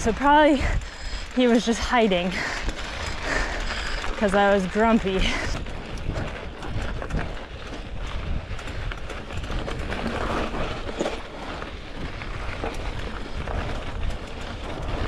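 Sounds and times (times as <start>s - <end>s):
steady low rumble: 0.0s - 10.5s
bike rattling and clattering: 0.0s - 15.0s
bike tyres crunching on gravel: 0.0s - 15.0s.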